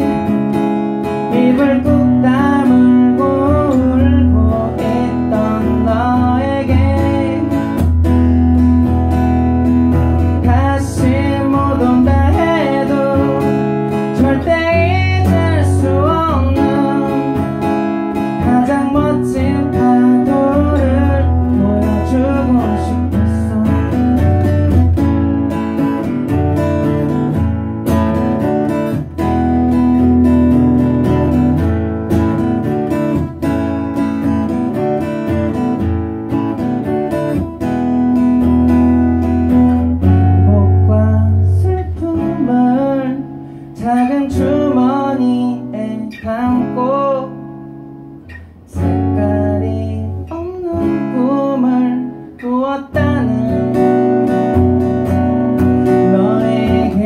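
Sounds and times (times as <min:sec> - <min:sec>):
acoustic guitar strumming: 0:00.0 - 0:57.0
man singing: 0:01.1 - 0:08.0, 0:10.2 - 0:25.0, 0:40.0 - 0:47.6, 0:48.7 - 0:57.0.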